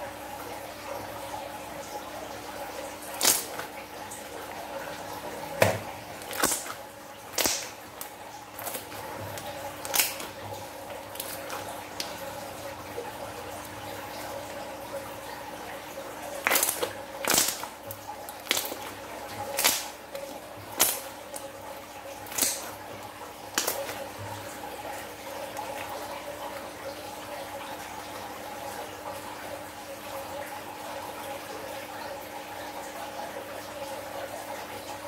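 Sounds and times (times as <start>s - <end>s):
slime squishing: 3.1s - 3.7s, 5.6s - 12.2s, 16.4s - 21.6s, 22.2s - 24.2s
slime wet pops: 3.2s - 3.6s, 5.6s - 7.7s, 9.8s - 10.3s, 16.4s - 17.7s, 19.6s - 19.9s, 20.8s - 21.0s, 22.3s - 22.6s.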